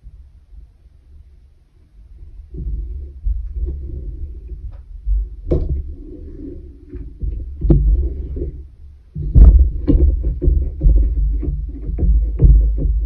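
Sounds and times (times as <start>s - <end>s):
music with bass beat: 9.2s - 13.0s.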